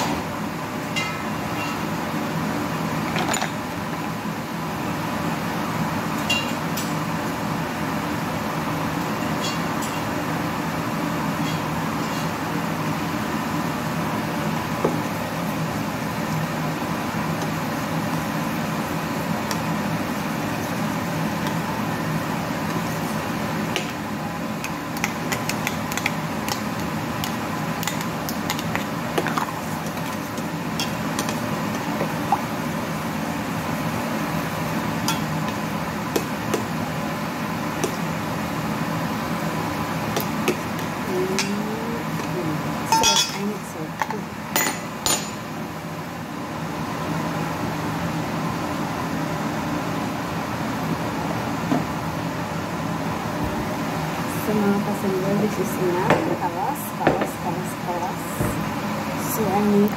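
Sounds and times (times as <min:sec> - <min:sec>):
kitchen appliance humming: 0:00.0 - 0:45.4.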